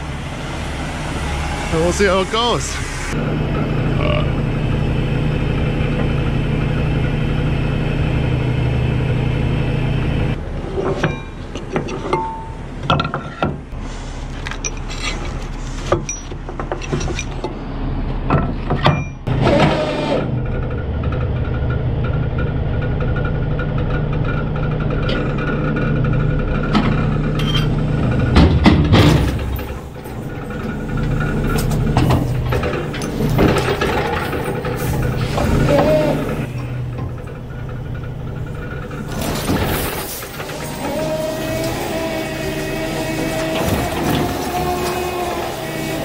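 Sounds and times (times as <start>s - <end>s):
diesel truck engine idling: 0.0s - 10.6s, 20.0s - 46.0s
sharp knocks and clanks: 10.8s - 13.7s, 15.9s - 17.6s, 26.6s - 40.6s.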